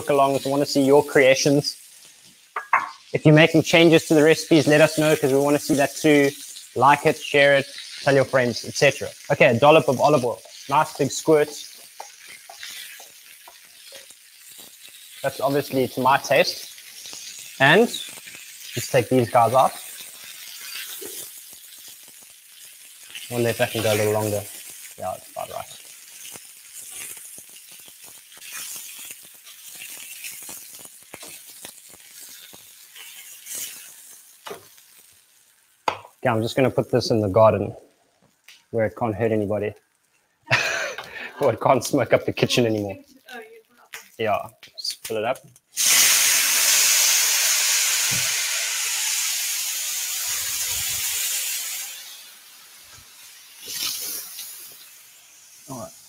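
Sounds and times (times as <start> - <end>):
meat sizzling on griddle pan: 0.0 - 56.0
tap water running: 2.5 - 3.0, 48.0 - 48.4.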